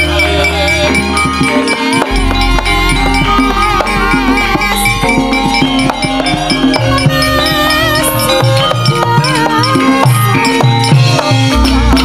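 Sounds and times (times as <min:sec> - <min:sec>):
gamelan ensemble playing: 0:00.0 - 0:12.0
deep low tone: 0:02.1 - 0:08.0.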